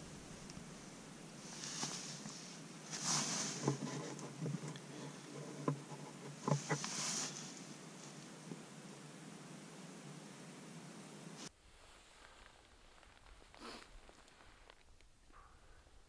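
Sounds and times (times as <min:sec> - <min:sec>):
rustling handling noise: 0:01.4 - 0:08.3.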